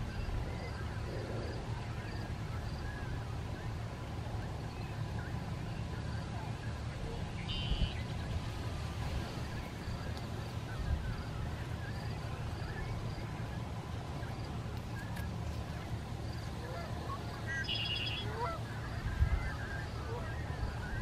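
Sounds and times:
faint bird chirps: 7.3 - 8.2, 16.3 - 21.0
rapid high bird notes: 17.5 - 18.3.

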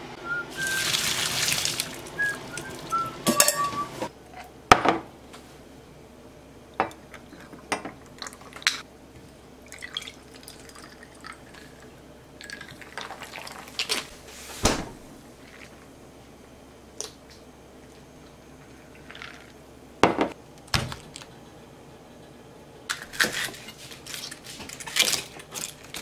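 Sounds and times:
carbonated water pouring over ice: 0.6 - 2.8
ice clinking against glass: 3.3 - 3.8.

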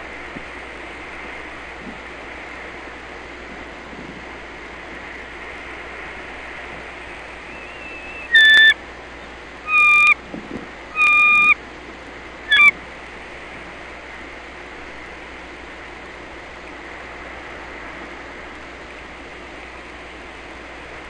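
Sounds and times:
eagle whistled calls: 7.3 - 8.8, 9.6 - 10.2, 10.9 - 11.6, 12.5 - 12.8.

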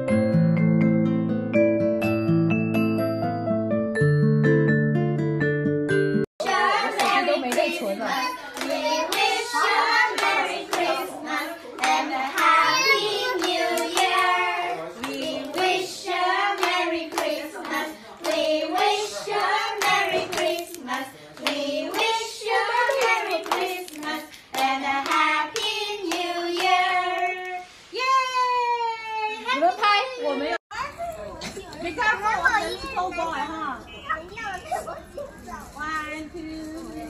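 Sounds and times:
girls and woman singing: 6.4 - 27.7
hands clapping: 6.5 - 7.8, 8.5 - 9.4, 10.1 - 14.3, 15.0 - 15.8, 19.8 - 22.1, 22.9 - 27.3.

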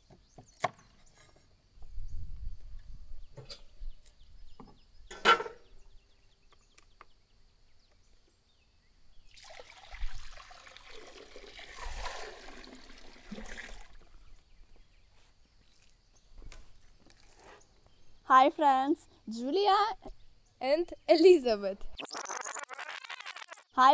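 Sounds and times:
metal lid clanking: 5.1 - 5.7
water pouring and splashing: 9.3 - 14.3.

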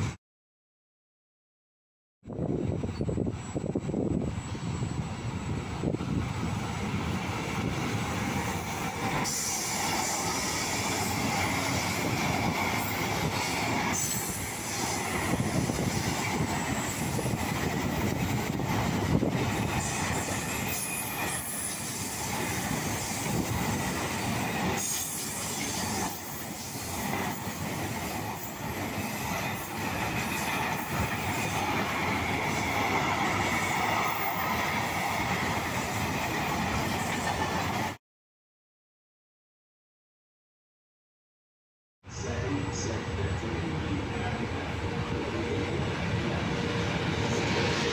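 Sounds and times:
train wheels rumbling on rails: 2.3 - 38.0, 42.2 - 47.9
metallic wheel squeal: 19.8 - 22.2.

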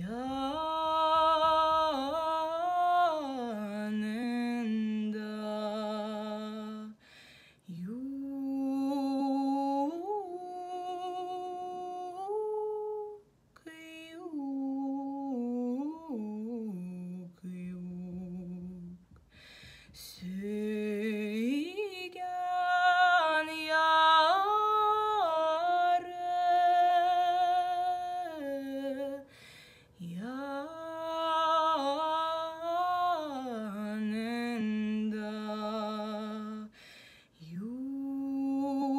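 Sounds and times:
woman singing unaccompanied: 0.0 - 7.0, 7.7 - 19.2, 19.9 - 36.8, 37.4 - 38.9
woman breathing: 7.0 - 7.7, 19.2 - 20.2, 29.2 - 30.0, 36.7 - 37.5.

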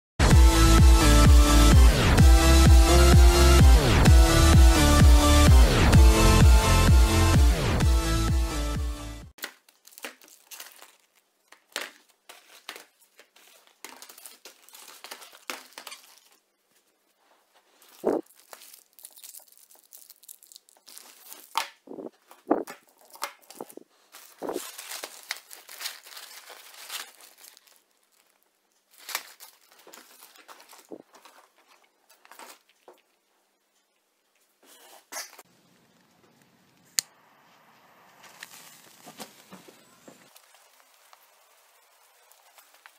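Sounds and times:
cellophane crinkling and rustling: 9.4 - 33.2, 38.2 - 42.9.

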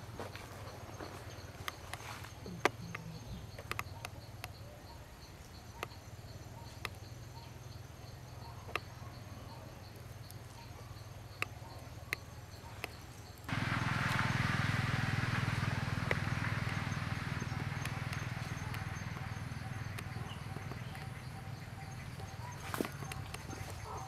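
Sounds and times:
insects chirping: 0.0 - 24.0
low steady hum: 0.0 - 24.0
sharp clicks: 1.5 - 4.6, 15.3 - 24.0.

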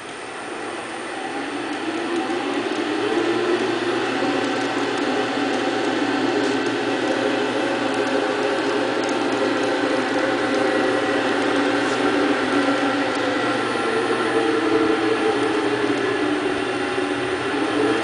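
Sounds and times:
wood lathe motor whirring: 0.0 - 18.0.

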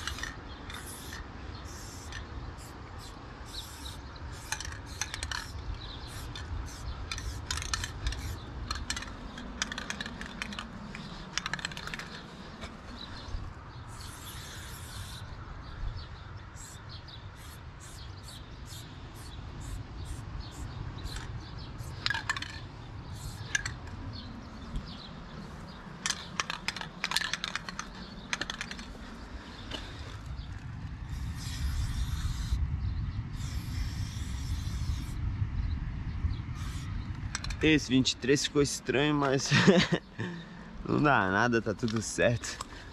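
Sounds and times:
sharp clicks and crackles: 0.0 - 1.3, 3.8 - 13.0, 21.1 - 24.1, 24.7 - 30.9, 37.1 - 37.9
spray-paint can hissing: 0.0 - 12.3, 13.9 - 15.3, 16.6 - 23.7, 31.1 - 32.6, 33.3 - 35.2, 36.6 - 37.5.

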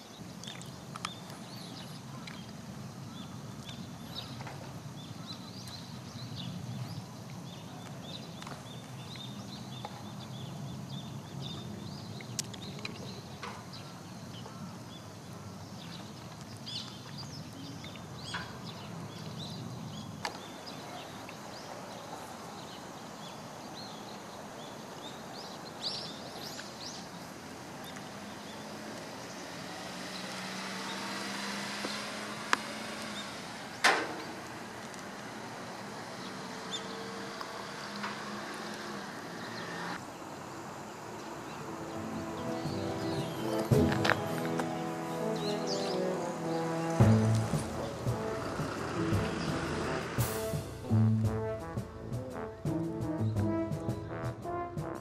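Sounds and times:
rushing noise: 40.9 - 54.0.

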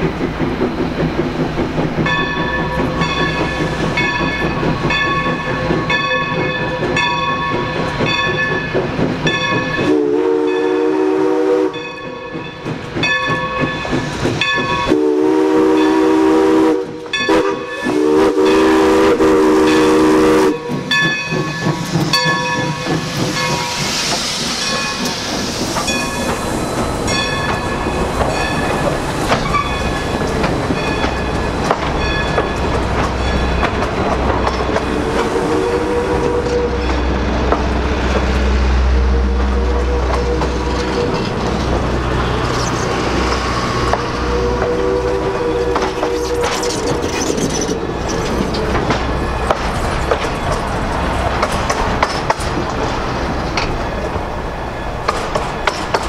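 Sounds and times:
steam hissing: 0.0 - 36.8, 41.4 - 53.4
train rumbling: 0.0 - 56.0
locomotive bell ringing: 2.0 - 9.9, 11.7 - 15.0, 17.1 - 18.7, 19.6 - 23.9, 24.5 - 25.2, 25.8 - 34.8
steam whistle blowing: 9.8 - 11.8, 14.9 - 20.9, 34.9 - 36.9, 38.7 - 41.2, 43.4 - 47.2.

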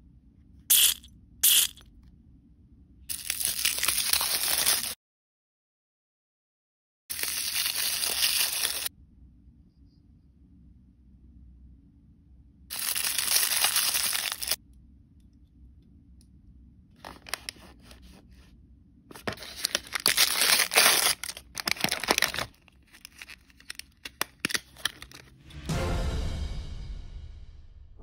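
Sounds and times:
foil crinkling: 3.1 - 5.0, 7.1 - 8.9, 12.7 - 14.6, 17.0 - 18.1, 19.1 - 25.4
foil packet tearing: 3.1 - 5.0, 7.1 - 8.9, 12.7 - 14.6, 17.0 - 18.0, 19.1 - 25.4.

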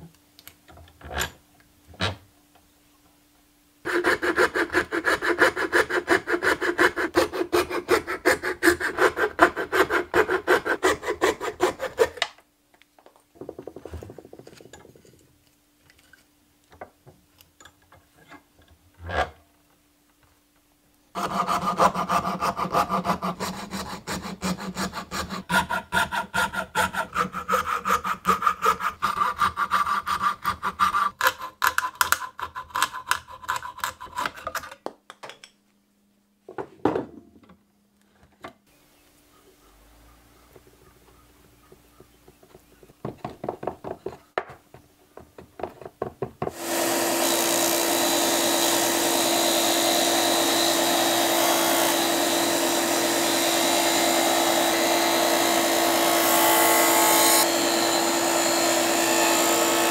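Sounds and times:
saw cutting wood: 3.9 - 12.2, 21.2 - 34.4, 46.5 - 59.9.

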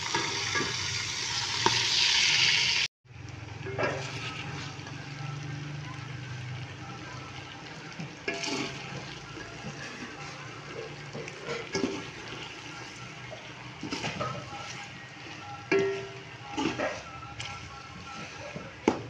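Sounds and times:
food sizzling in a pan: 0.0 - 19.0
spatula scraping a pan: 3.7 - 4.9, 8.2 - 19.0.

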